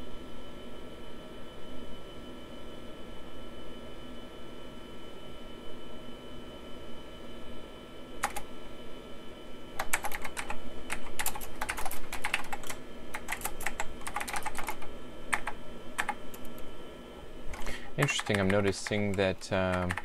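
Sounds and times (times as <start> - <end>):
mechanical keyboard typing: 8.2 - 8.4, 9.8 - 16.6, 17.5 - 20.0.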